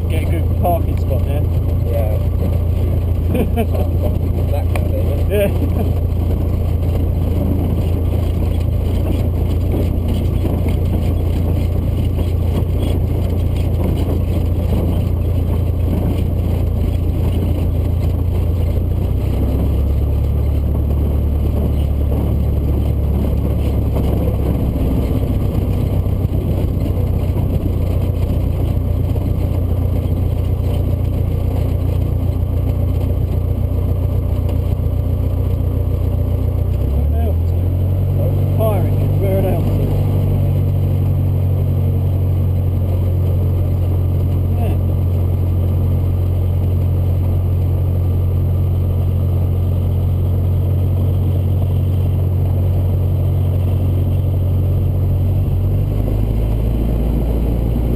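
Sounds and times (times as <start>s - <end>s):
light aircraft engine droning: 0.0s - 57.9s.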